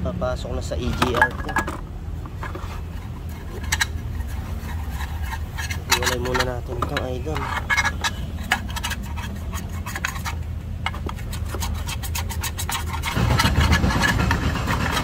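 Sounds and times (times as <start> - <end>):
metal parts clinking in a plastic tub: 0.8 - 1.9.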